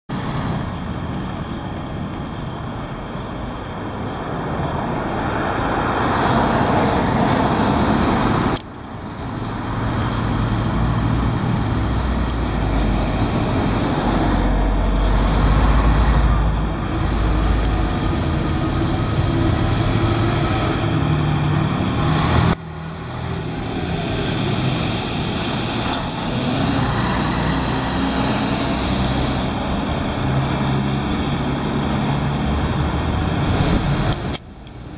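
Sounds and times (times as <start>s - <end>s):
diesel truck engine droning: 0.1s - 34.9s
traffic noise: 0.1s - 34.9s.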